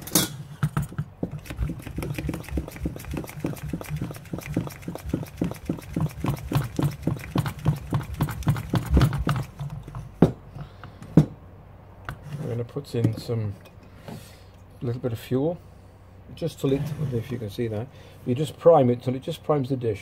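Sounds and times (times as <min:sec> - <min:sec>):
hand pump clicking: 0:01.4 - 0:09.8.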